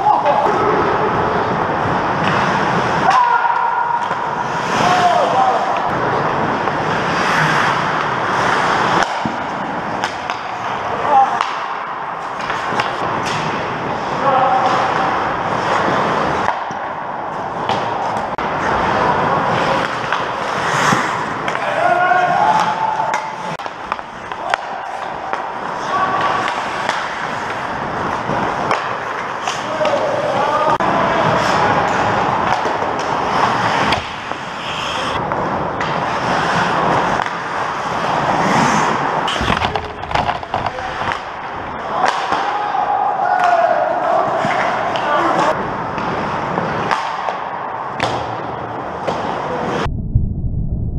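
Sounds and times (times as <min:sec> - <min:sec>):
hockey sticks and puck clacking: 0:00.0 - 0:49.9
ice skates scraping on ice: 0:01.4 - 0:03.1, 0:03.9 - 0:11.4, 0:12.2 - 0:16.7, 0:17.3 - 0:22.7, 0:23.4 - 0:42.1.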